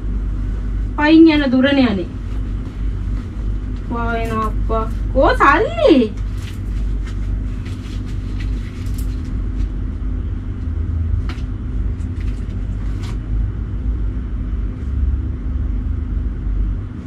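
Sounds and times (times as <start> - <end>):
low rumble and hum: 0.0 - 17.0
clothing rustling and clicking: 2.2 - 5.0, 6.1 - 9.7.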